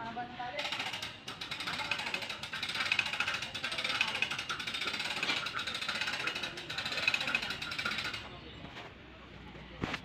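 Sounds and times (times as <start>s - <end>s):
hand hoist ratcheting: 0.6s - 8.3s.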